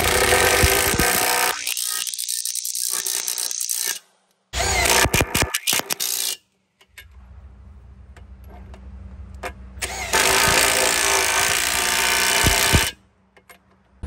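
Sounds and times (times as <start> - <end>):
impact wrench hammering: 0.0 - 1.6, 9.8 - 13.0
low hum: 7.0 - 13.2.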